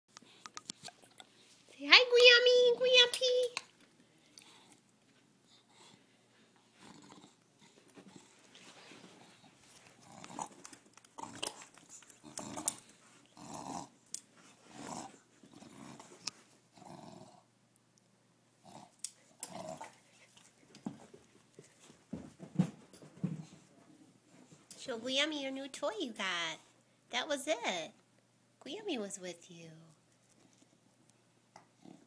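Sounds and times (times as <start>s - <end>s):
dog growling: 6.8s - 8.3s, 10.0s - 14.0s, 14.7s - 17.5s, 18.6s - 20.0s, 31.8s - 32.0s.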